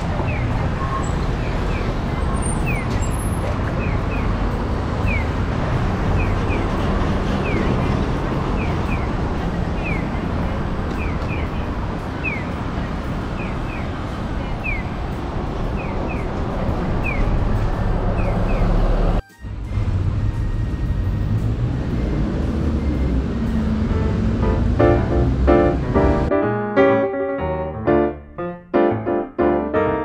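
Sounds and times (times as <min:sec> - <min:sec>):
city street traffic: 0:00.0 - 0:30.0.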